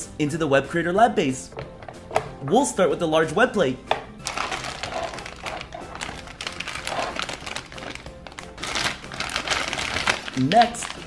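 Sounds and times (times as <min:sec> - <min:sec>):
background music: 0:00.0 - 0:11.0
plastic and foil crinkling: 0:04.2 - 0:11.0.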